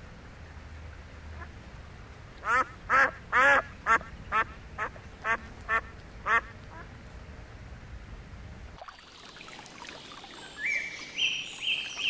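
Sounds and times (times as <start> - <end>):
ducks quacking: 2.4 - 6.9.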